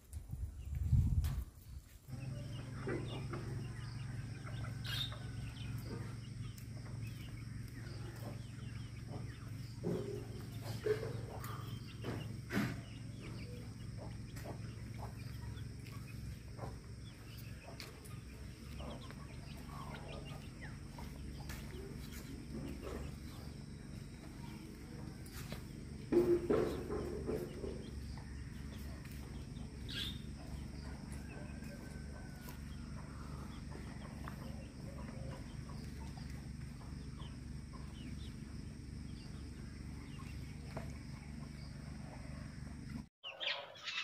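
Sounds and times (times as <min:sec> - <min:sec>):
steady low hum: 0:00.0 - 0:43.1
chickens clucking: 0:02.0 - 0:44.0.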